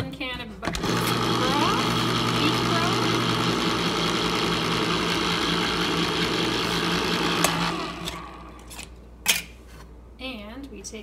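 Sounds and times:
electric can opener motor humming: 0.7 - 8.8.

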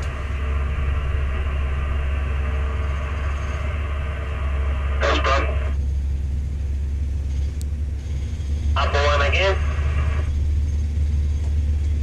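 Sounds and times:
tower crane rumbling: 0.0 - 12.0
person's voice: 5.0 - 5.8, 8.8 - 10.0.

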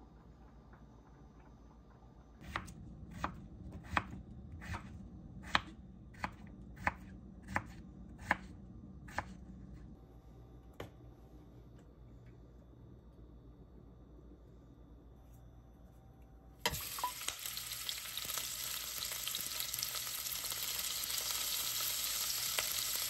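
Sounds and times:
knife chopping on cutting board: 2.4 - 8.5, 9.1 - 9.4.

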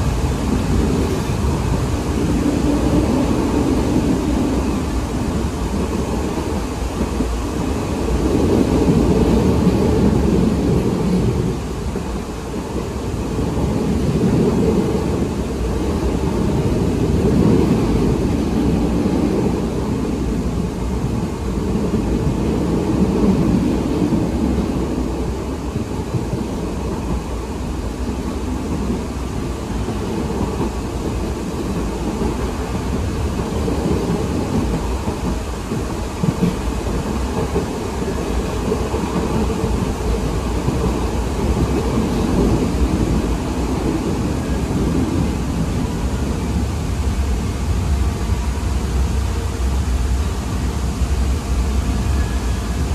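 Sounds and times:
light-rail car interior rumble: 0.0 - 52.9.

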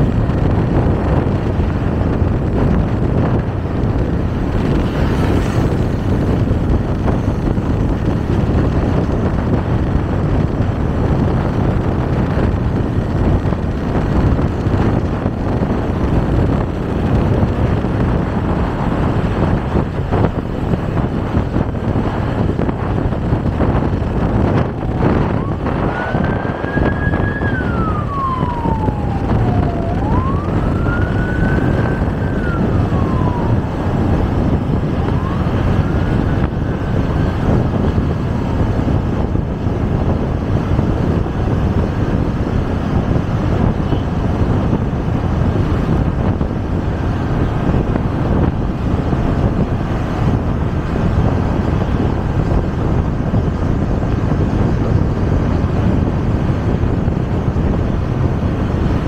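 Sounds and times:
wind and road noise: 0.0 - 59.0
siren wailing: 24.6 - 37.7.

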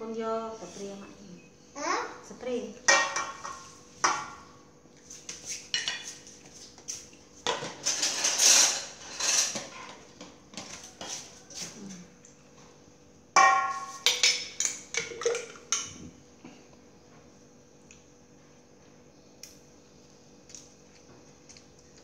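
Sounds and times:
rustling and scraping: 3.1 - 12.0.

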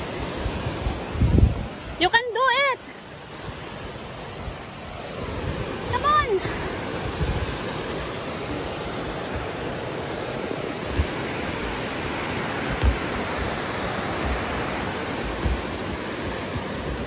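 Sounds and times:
waterfall rushing: 0.0 - 17.0
short low thumps: 12.6 - 16.7.

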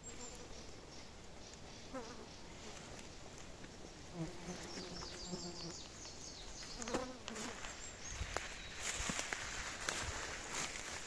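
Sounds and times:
insect buzzing: 3.9 - 6.0, 6.6 - 8.3.

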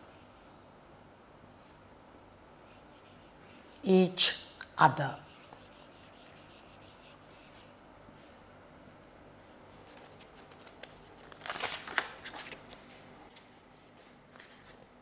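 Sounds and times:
marker pen writing on whiteboard: 2.6 - 3.9, 5.1 - 7.8.

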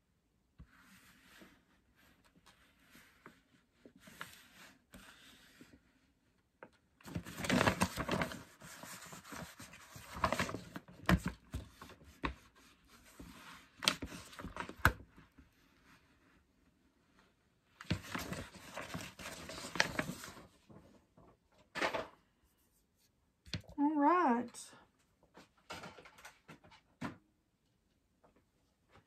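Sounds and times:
paper crinkling: 7.0 - 15.0, 17.8 - 20.6.

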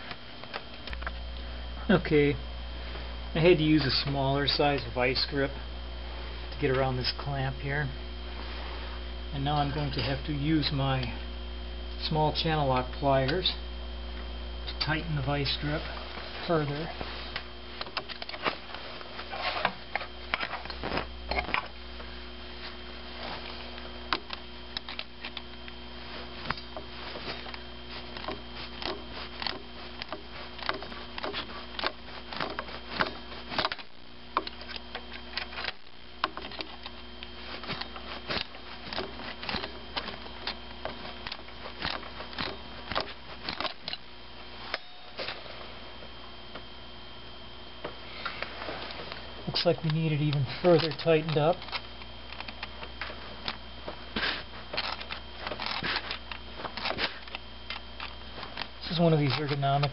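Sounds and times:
faint hum: 0.0 - 59.9
hand tools clicking and scraping: 26.2 - 45.5, 48.2 - 59.9.

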